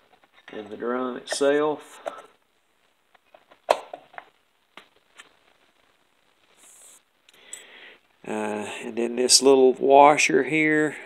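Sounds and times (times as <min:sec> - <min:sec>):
soft rustle: 0:04.8 - 0:07.7.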